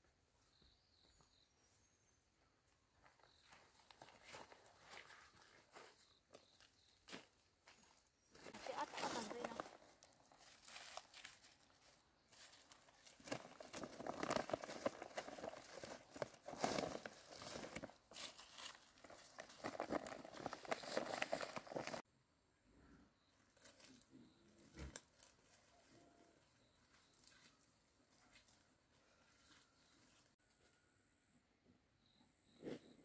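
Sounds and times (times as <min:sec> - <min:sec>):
leaves rustling: 0:08.5 - 0:22.0
plastic sack crinkling: 0:12.4 - 0:22.0.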